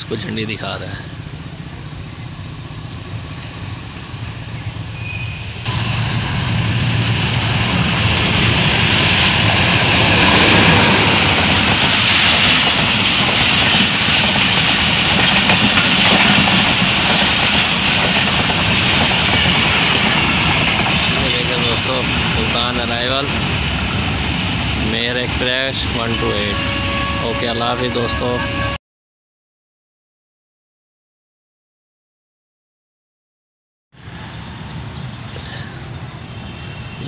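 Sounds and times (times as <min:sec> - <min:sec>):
train wheels rushing on rails: 0:00.0 - 0:28.0
low rumble of approaching train: 0:00.0 - 0:28.8, 0:34.0 - 0:37.0.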